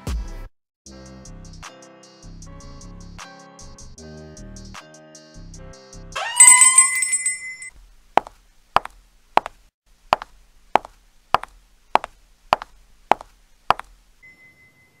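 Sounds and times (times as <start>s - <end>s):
faint steady tone: 14.1s - 15.0s.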